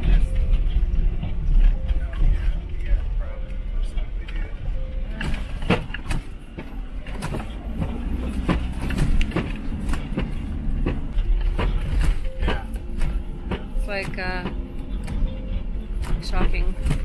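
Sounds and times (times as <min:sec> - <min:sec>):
van engine and road rumble: 0:00.0 - 0:17.0
suspension knocks and rattles: 0:05.1 - 0:17.0.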